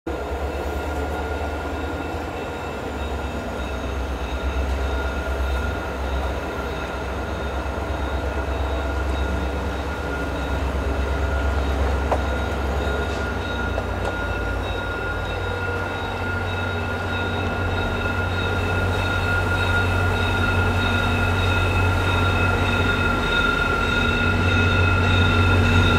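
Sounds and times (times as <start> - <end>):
low diesel locomotive rumble: 0.1 - 25.9.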